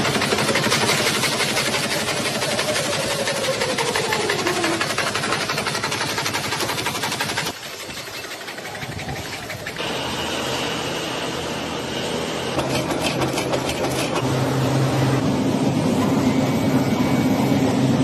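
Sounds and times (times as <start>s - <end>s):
rapid machine clattering: 0.0s - 9.8s, 12.6s - 14.3s
factory machinery hum: 0.0s - 18.0s.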